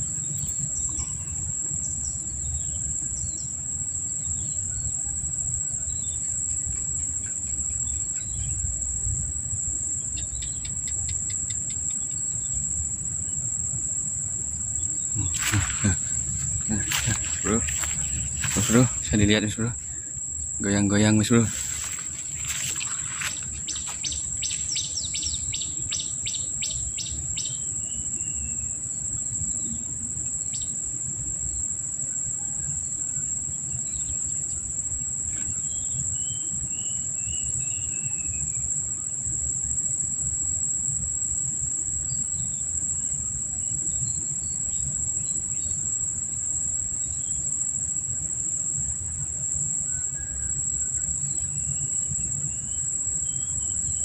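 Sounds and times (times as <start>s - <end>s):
high-pitched insect drone: 0.0s - 54.0s
bird chirps: 20.6s - 28.6s.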